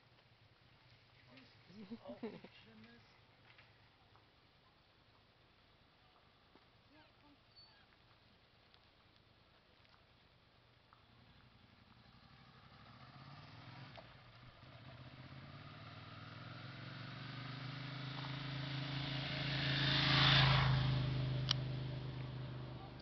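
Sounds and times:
motorcycle passing by: 0:11.1 - 0:23.0.

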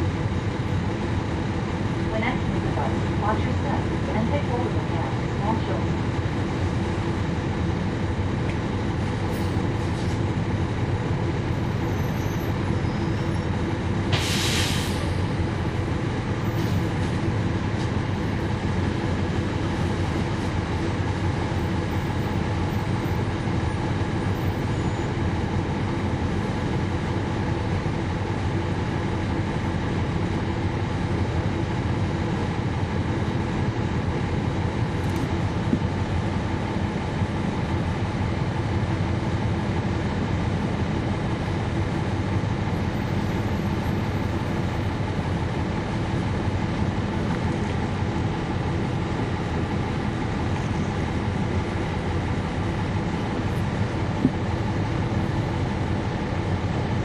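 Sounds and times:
bus diesel engine running: 0:00.0 - 0:57.0
short hiss: 0:14.1 - 0:15.0.

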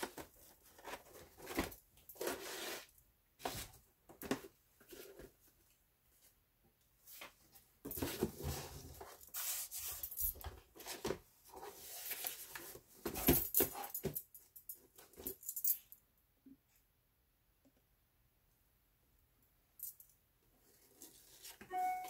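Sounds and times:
cardboard rustling and scraping: 0:00.0 - 0:05.5, 0:07.1 - 0:13.8.

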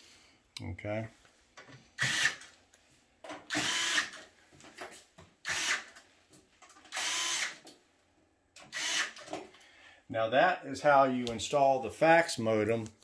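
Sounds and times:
cordless power screwdriver running: 0:03.5 - 0:04.1, 0:05.5 - 0:05.8, 0:06.9 - 0:07.6, 0:08.7 - 0:09.2.

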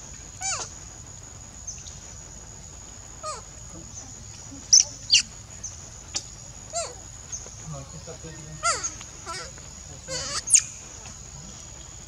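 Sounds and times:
baby monkey squeaking: 0:00.4 - 0:00.7, 0:03.2 - 0:03.4, 0:04.7 - 0:05.3, 0:06.1 - 0:07.0, 0:08.6 - 0:09.5, 0:10.1 - 0:10.8.

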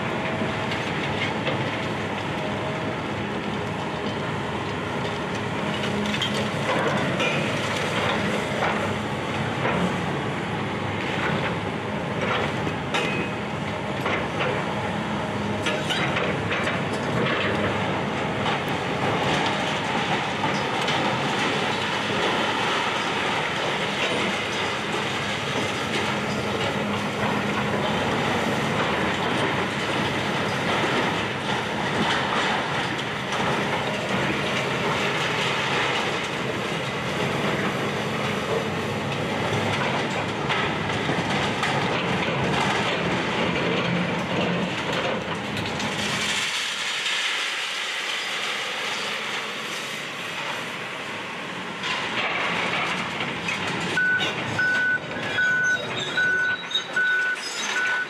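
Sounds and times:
excavator mechanical din: 0:51.8 - 0:58.0.

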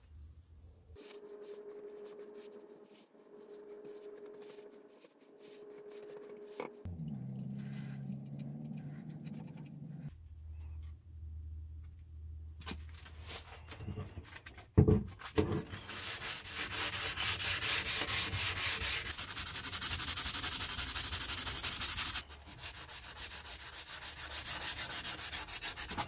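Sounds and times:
low hum: 0:00.0 - 0:12.6.

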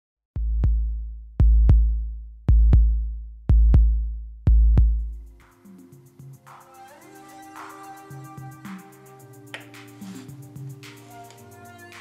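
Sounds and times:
soft electronic music: 0:04.8 - 0:12.0.

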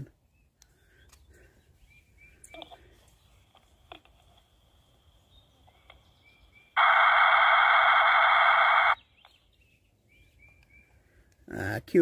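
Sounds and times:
faint bird chirps: 0:00.0 - 0:06.9, 0:08.7 - 0:11.3
radio data burst hiss: 0:06.7 - 0:09.0.

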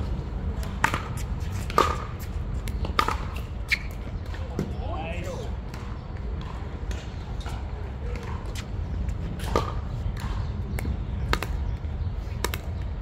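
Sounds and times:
steady low rumble: 0:00.0 - 0:04.5, 0:05.3 - 0:13.0
ball bouncing on hard court: 0:05.7 - 0:08.7.

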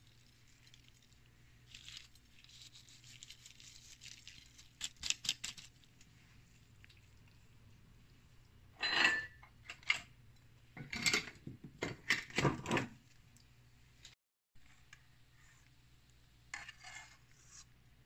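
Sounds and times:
utensil scraping a dish: 0:16.5 - 0:17.7.

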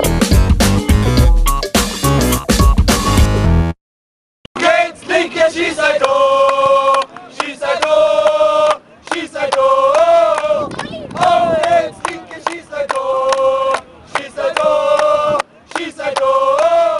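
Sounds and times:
men chanting in unison: 0:04.6 - 0:16.9
hand claps: 0:06.0 - 0:16.8.

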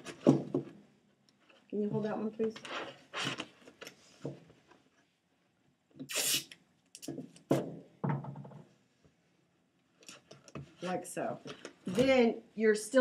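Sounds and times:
knocks and rustles of box panels: 0:00.0 - 0:00.8
masking tape ripped off roll: 0:06.0 - 0:07.2.

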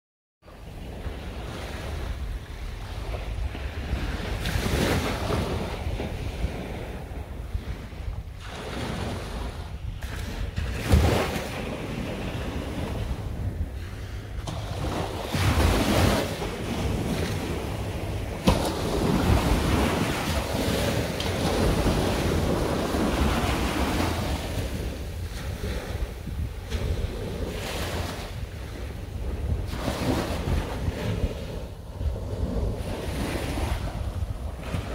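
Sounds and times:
wind buffeting microphone: 0:00.4 - 0:34.9
small waves washing on shore: 0:00.5 - 0:34.9.

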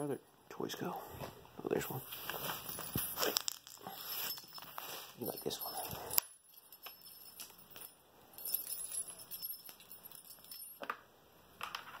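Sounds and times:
small jingle bell jingling: 0:02.3 - 0:10.9.

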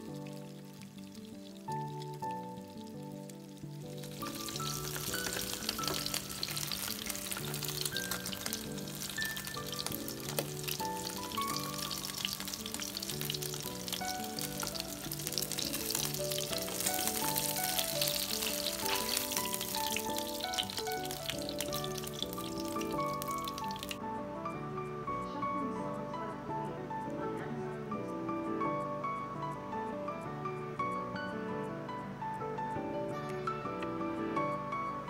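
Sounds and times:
fish sizzling in hot oil: 0:00.0 - 0:24.0
slow melodic background music: 0:00.0 - 0:35.0.

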